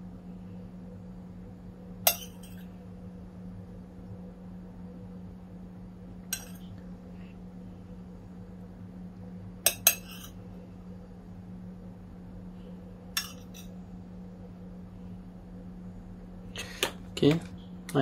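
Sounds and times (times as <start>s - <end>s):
steady low hum: 0.0s - 18.0s
metal spoon clinking on plates: 2.1s - 2.7s, 6.3s - 6.7s, 9.7s - 10.4s, 13.2s - 13.7s.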